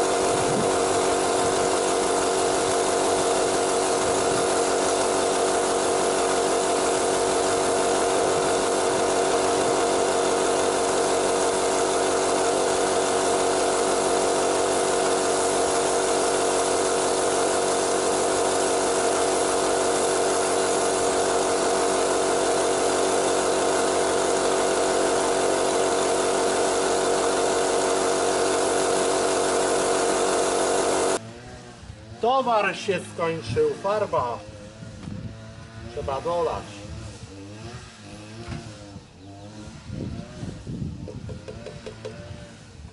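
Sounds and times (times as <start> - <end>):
air compressor humming: 0.0 - 31.2, 40.6 - 42.9
spray gun hissing: 0.0 - 31.2.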